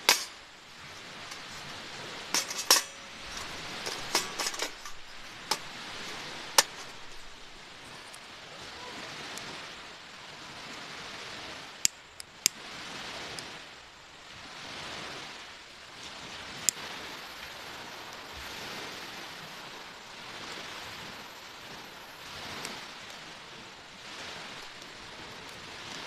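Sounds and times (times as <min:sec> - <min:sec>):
surf washing on shore: 0:00.0 - 0:26.0.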